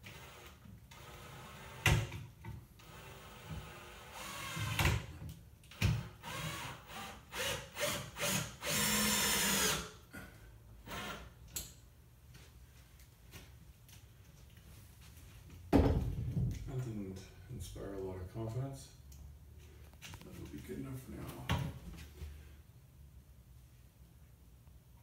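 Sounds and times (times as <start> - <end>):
power drill whirring: 0.0 - 1.9, 2.8 - 5.0, 5.8 - 9.9, 10.8 - 11.3.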